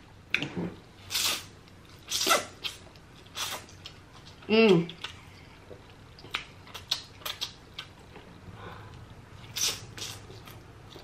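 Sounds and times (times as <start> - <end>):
wet mouth clicks and smacks chewing: 2.6 - 8.3.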